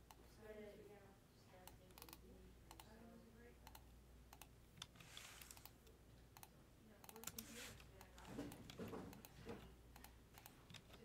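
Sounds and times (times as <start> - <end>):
keyboard and mouse clicks: 1.6 - 3.0, 3.6 - 11.0.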